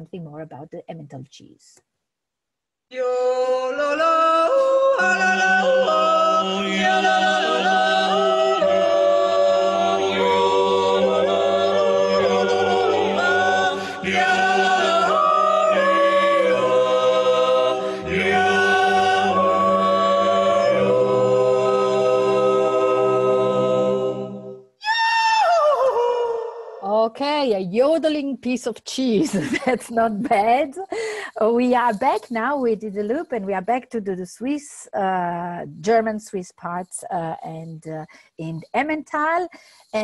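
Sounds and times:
voices yodeling in harmony: 2.9 - 26.9.

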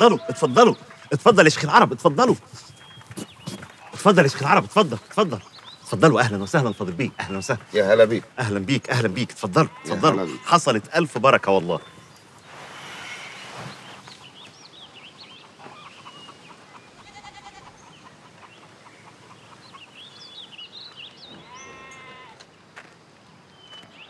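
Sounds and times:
goat bleating: 0.0 - 1.2, 9.4 - 10.8, 17.0 - 17.8, 21.5 - 22.4
small birds chirping: 0.0 - 24.0.

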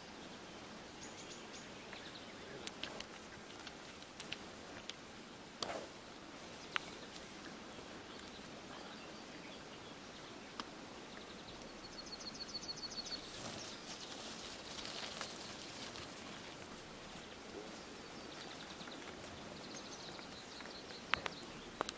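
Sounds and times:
rustling and crackling: 1.9 - 8.5, 13.2 - 21.9
scattered clicks: 2.6 - 5.0.

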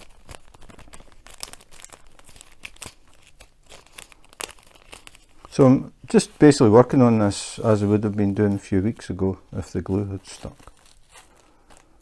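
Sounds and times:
small beads clicking and rustling: 0.0 - 5.6, 9.9 - 12.0
plastic bag crinkling: 0.0 - 12.0.

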